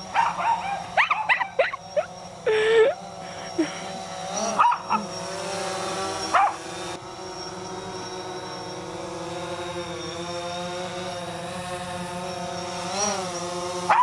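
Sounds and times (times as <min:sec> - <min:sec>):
drone propeller whine: 0:00.0 - 0:14.0
dog barking: 0:00.1 - 0:01.8, 0:04.6 - 0:05.1, 0:06.3 - 0:06.6.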